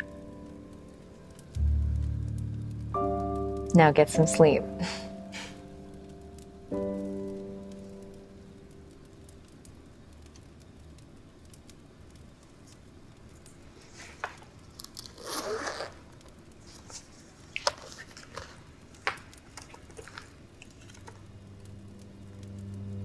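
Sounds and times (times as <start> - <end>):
crinkling rustle: 5.4 - 22.8.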